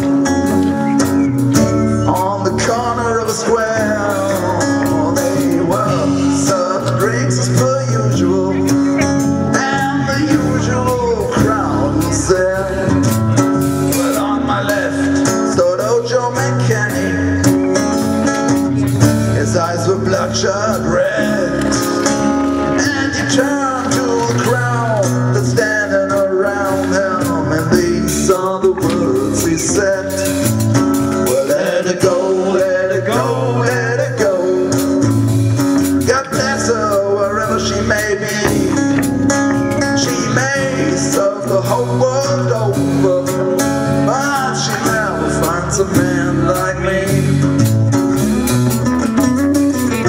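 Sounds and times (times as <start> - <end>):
acoustic rhythm guitar: 0.0 - 50.0
lead guitar bending sliding notes: 0.0 - 50.0.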